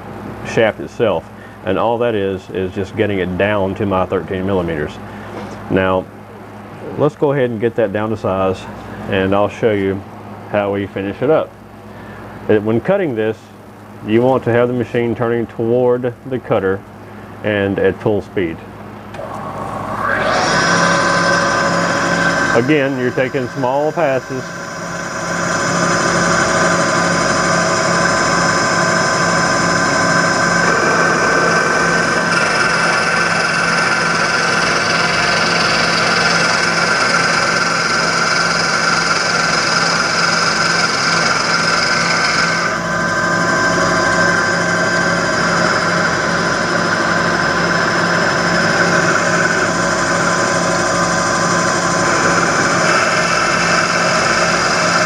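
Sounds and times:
benchtop lathe running: 0:19.2 - 0:55.0.

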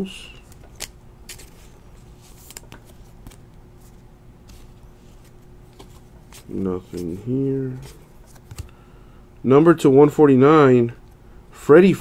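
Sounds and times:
faint steady hum: 0:00.0 - 0:12.0
trading cards flicking and rustling: 0:00.4 - 0:08.8.

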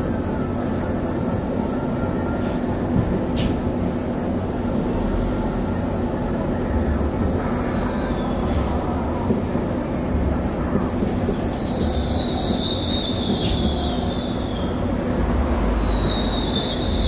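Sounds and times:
firework pops: 0:10.7 - 0:14.6
faint falling whistle: 0:11.0 - 0:17.0.

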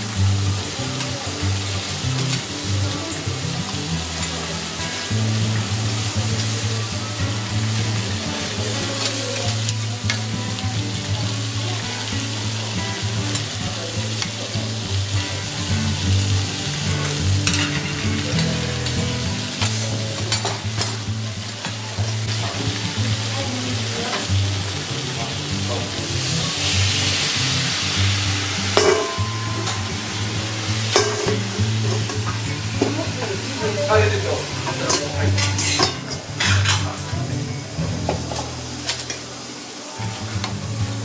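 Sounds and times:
food sizzling on a griddle: 0:00.0 - 0:41.0
metal clinks on a griddle: 0:17.0 - 0:19.0.

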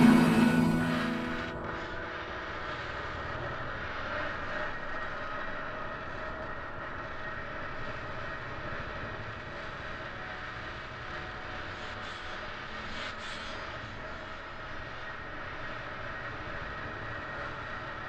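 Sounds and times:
noisy rumbling drone: 0:00.0 - 0:11.7.

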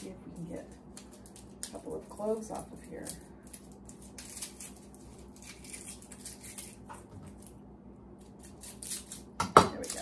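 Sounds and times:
garlic skin crackling and rustling: 0:00.0 - 0:07.6.

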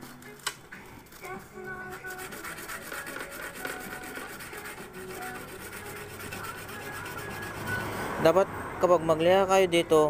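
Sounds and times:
metal scraping on sandpaper: 0:01.9 - 0:08.0.

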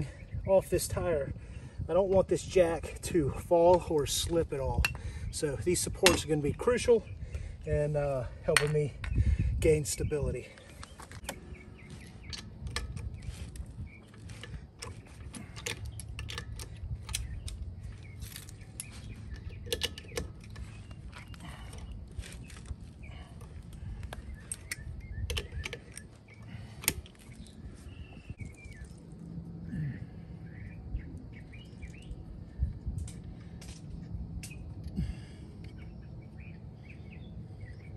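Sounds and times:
metallic clicks of lug nuts: 0:11.1 - 0:22.8, 0:23.5 - 0:27.5.

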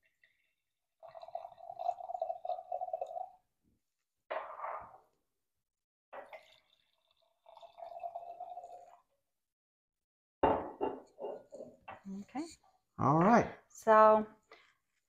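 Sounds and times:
wine pouring into glass: 0:00.2 - 0:03.4, 0:06.2 - 0:09.1.

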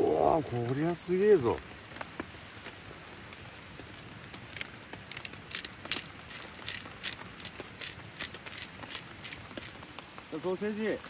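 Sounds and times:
meat sizzling on a grill: 0:00.0 - 0:05.0
crackling pops: 0:00.0 - 0:11.0.

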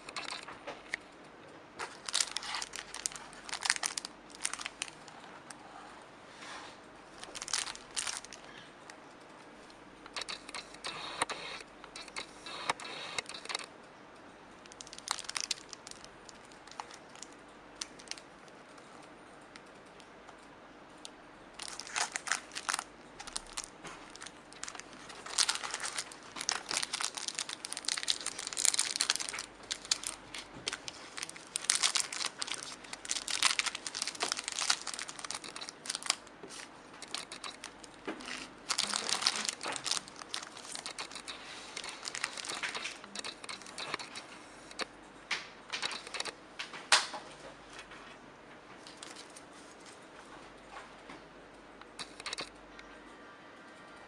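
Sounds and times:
plastic bag crinkling: 0:00.0 - 0:00.5, 0:01.8 - 0:05.5, 0:07.1 - 0:08.6, 0:10.1 - 0:13.7, 0:14.6 - 0:18.6, 0:21.6 - 0:44.9, 0:45.7 - 0:46.4, 0:48.8 - 0:50.0, 0:51.9 - 0:52.5.

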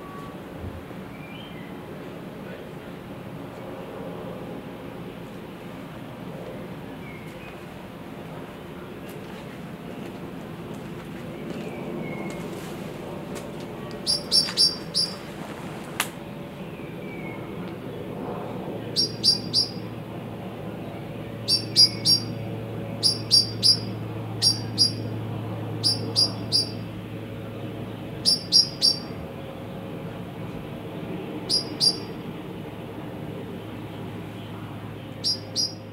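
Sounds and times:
small bird chirping: 0:14.0 - 0:15.3, 0:19.0 - 0:19.9, 0:21.4 - 0:22.4, 0:23.0 - 0:25.1, 0:25.8 - 0:26.9, 0:28.2 - 0:29.2, 0:31.5 - 0:32.2, 0:35.2 - 0:35.9.

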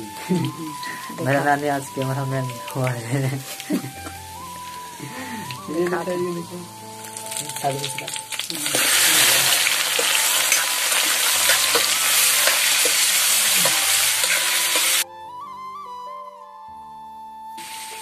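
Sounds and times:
fish sizzling in hot oil: 0:00.0 - 0:15.0, 0:17.6 - 0:18.0
background music with melody: 0:00.0 - 0:18.0
spoon clicking against pan: 0:09.6 - 0:15.0.

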